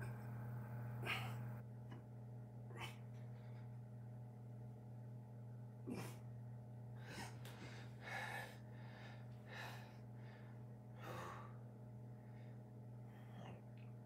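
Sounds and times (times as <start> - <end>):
person breathing hard: 7.0 - 13.6.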